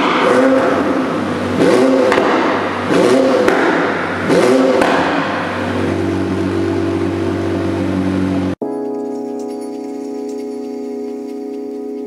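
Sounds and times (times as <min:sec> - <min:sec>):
car engine revving: 0:00.0 - 0:08.6
exhaust crack: 0:00.0 - 0:09.0
car engine idling: 0:00.0 - 0:12.0.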